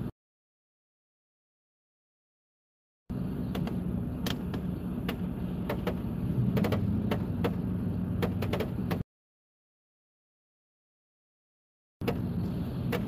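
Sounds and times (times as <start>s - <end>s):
car cabin hum: 3.1s - 9.0s, 12.0s - 13.0s.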